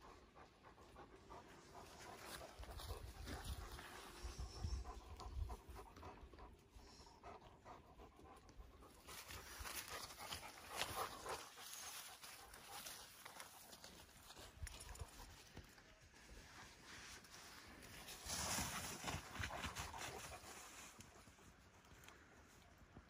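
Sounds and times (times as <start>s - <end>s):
dog panting: 0.0s - 14.0s.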